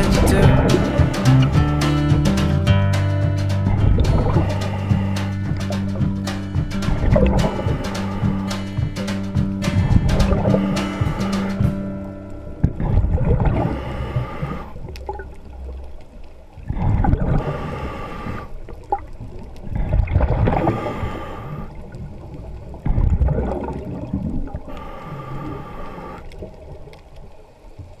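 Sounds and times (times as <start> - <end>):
regulator inhalation: 4.2 - 11.9, 13.6 - 14.8, 17.3 - 18.6, 20.6 - 21.8, 24.7 - 26.3
bubbling underwater exhalations: 18.4 - 24.7.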